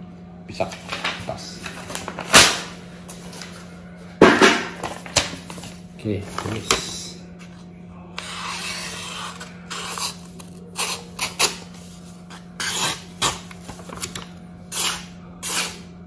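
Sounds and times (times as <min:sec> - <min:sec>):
knife blade scraping: 0:12.3 - 0:13.0, 0:14.7 - 0:15.9.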